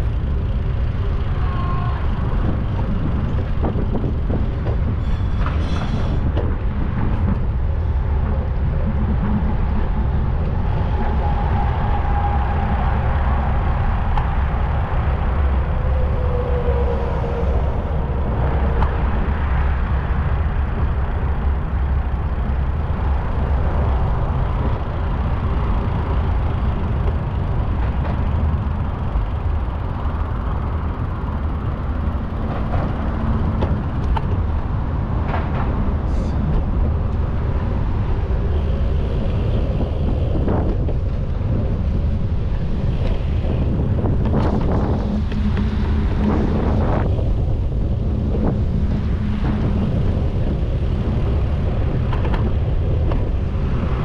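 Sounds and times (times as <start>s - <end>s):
street traffic rumble: 0.0s - 54.0s
wind on microphone: 0.0s - 54.0s
faint squeals: 1.1s - 2.4s, 5.0s - 6.2s, 15.4s - 19.4s.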